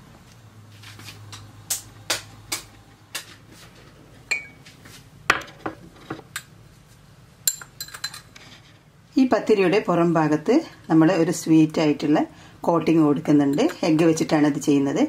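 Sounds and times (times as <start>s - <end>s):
dishes and utensils clinking: 7.4s - 8.3s.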